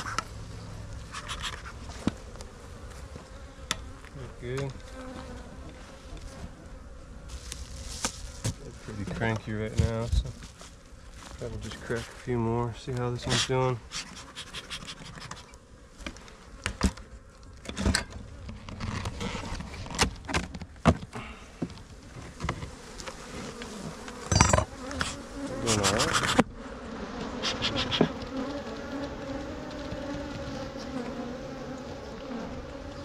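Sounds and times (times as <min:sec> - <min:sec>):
honeybees buzzing: 0:00.0 - 0:33.0
hive boxes clicking and knocking: 0:27.2 - 0:33.0.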